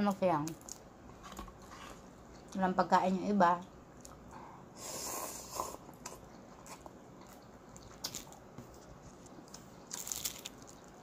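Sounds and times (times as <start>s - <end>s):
quiet chewing: 5.4s - 11.0s.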